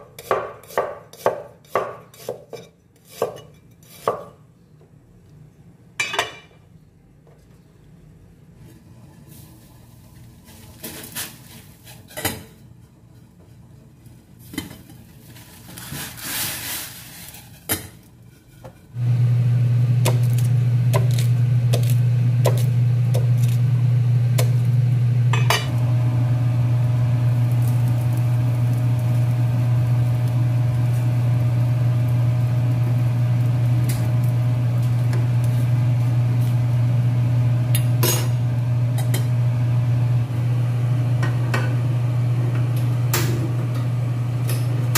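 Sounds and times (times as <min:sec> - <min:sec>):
appliance motor humming: 0:19.0 - 0:44.9.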